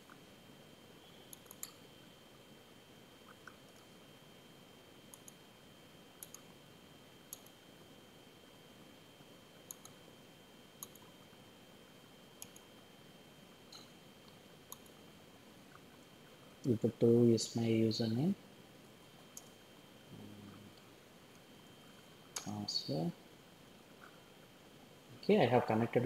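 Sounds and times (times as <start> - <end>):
low steady hiss: 0.0 - 26.0
computer mouse clicks: 1.3 - 1.8, 5.1 - 5.4, 6.2 - 6.5, 7.3 - 7.6, 9.6 - 10.0, 10.8 - 11.1, 12.4 - 12.7, 13.7 - 15.0, 19.3 - 19.6.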